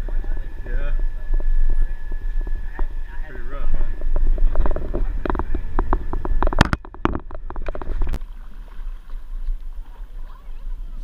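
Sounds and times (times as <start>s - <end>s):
low rumble: 0.0s - 11.0s
wind rumble on microphone: 0.0s - 11.0s
sharp clicks and knocks: 4.0s - 8.2s.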